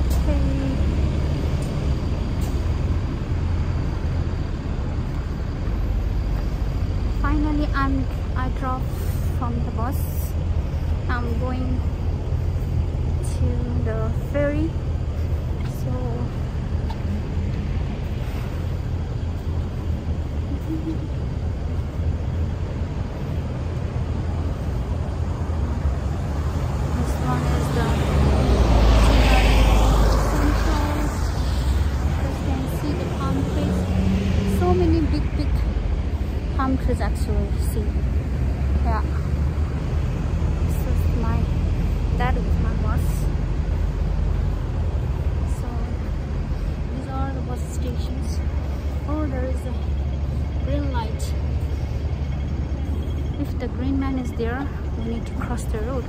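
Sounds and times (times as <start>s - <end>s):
low rumble of bus traffic: 0.0s - 56.0s.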